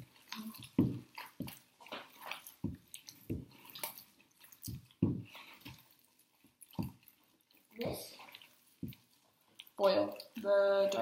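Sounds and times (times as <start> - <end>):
hands squelching meat mixture: 0.0 - 11.0.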